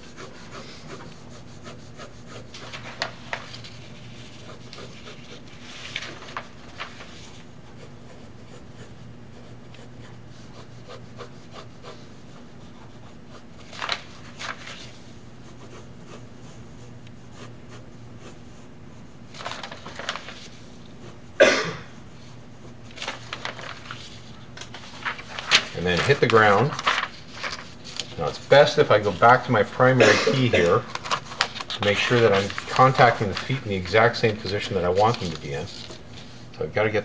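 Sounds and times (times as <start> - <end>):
pencil sketching on paper: 0.0 - 5.9, 7.0 - 19.5, 20.2 - 21.4
steady low hum: 0.0 - 37.0
paper sheets flipping: 2.5 - 7.5, 13.6 - 15.1, 19.3 - 20.9, 22.9 - 36.6.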